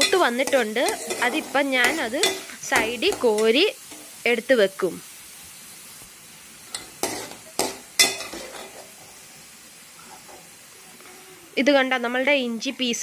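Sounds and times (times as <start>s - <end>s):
metal ladle scraping a pan: 0.0s - 4.2s, 6.7s - 9.3s
ginger sizzling in hot oil: 0.0s - 13.0s.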